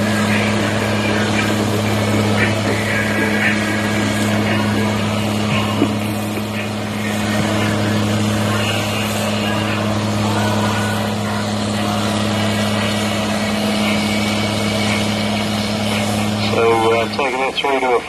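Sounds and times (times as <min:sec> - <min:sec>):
tractor diesel engine droning: 0:00.0 - 0:18.0.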